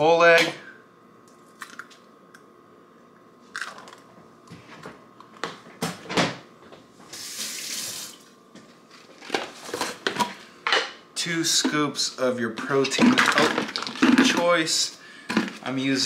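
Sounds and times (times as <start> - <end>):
kitchen tap running: 7.2 - 8.3.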